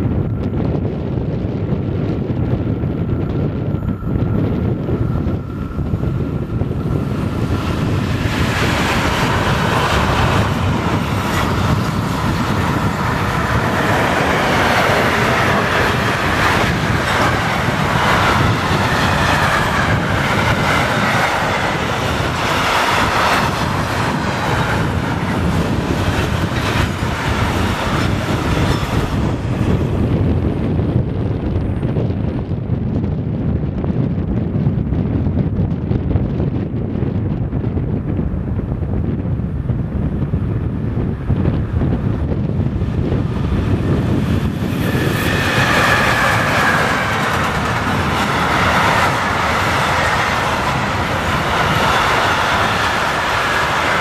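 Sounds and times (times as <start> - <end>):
wind buffeting microphone: 0.0 - 54.0
train wheels rolling and clicking: 1.9 - 32.1, 41.4 - 54.0.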